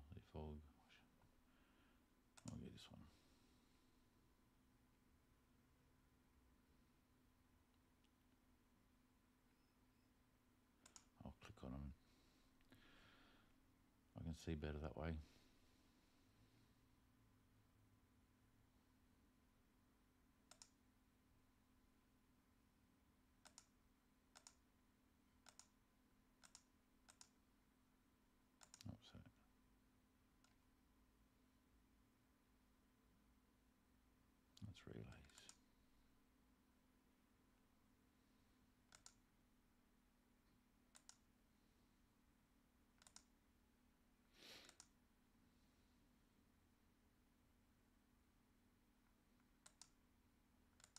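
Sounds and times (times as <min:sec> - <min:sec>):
computer mouse clicks: 0:02.3 - 0:02.6, 0:10.8 - 0:11.2, 0:20.4 - 0:20.8, 0:23.4 - 0:24.7, 0:25.4 - 0:25.8, 0:26.4 - 0:27.4, 0:28.6 - 0:28.9, 0:30.4 - 0:30.6, 0:34.6 - 0:35.6, 0:38.8 - 0:39.3, 0:40.9 - 0:41.3, 0:42.9 - 0:43.4, 0:44.6 - 0:45.0, 0:49.4 - 0:50.0.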